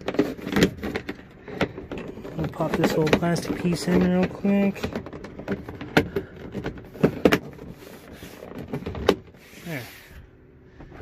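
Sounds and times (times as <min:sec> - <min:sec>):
plastic clicks and knocks: 0:00.0 - 0:07.8.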